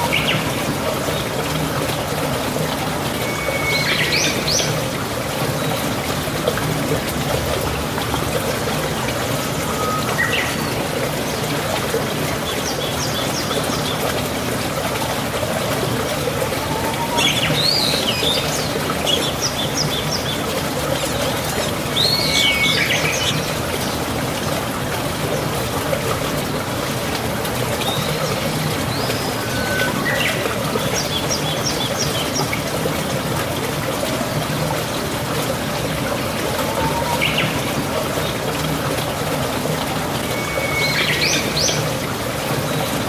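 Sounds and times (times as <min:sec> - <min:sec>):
flowing water: 0:00.0 - 0:43.0
birds chirping: 0:16.4 - 0:32.6.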